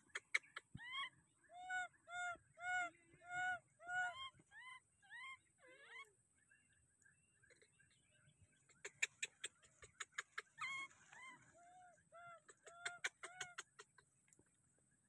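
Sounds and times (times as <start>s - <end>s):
baby monkey crying: 2.1s - 6.1s, 10.4s - 13.6s.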